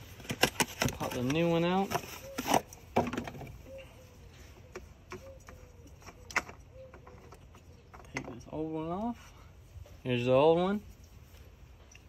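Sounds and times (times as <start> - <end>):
dove cooing: 2.0 - 2.7, 3.4 - 8.1.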